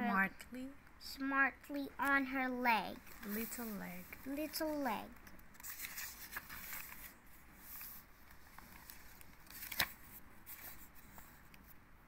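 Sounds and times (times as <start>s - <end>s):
paper page turning: 3.0s - 4.9s, 5.5s - 11.8s.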